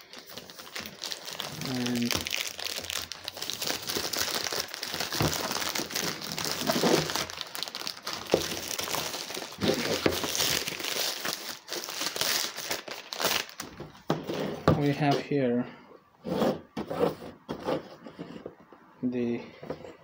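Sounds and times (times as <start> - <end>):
plastic bag crinkling: 0.0 - 13.8.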